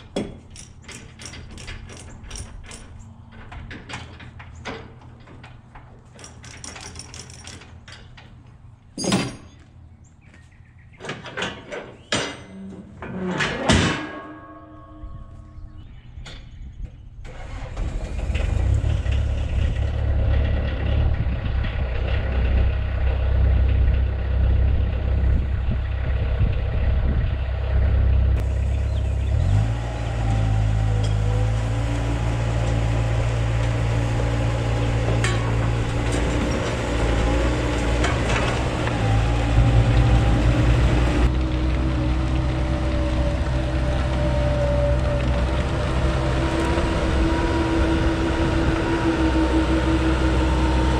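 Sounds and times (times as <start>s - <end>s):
diesel engine revving: 17.2s - 50.9s.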